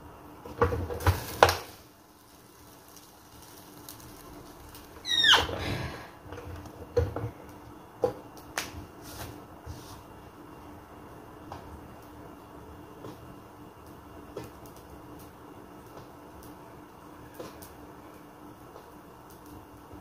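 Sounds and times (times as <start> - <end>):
faint steady hum: 0.0 - 20.0
short falling squeak: 5.0 - 5.9.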